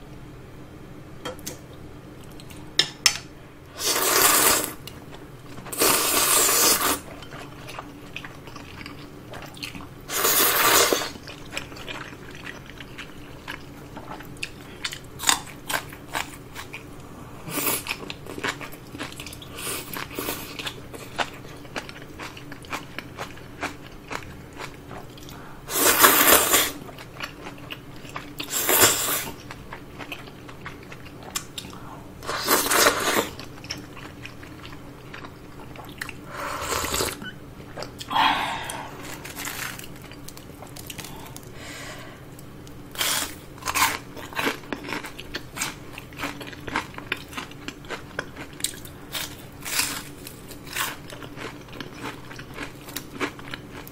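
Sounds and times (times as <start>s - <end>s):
noodles being slurped: 3.8s - 4.8s, 5.7s - 7.1s
crunchy chewing: 17.6s - 41.5s, 42.6s - 53.9s.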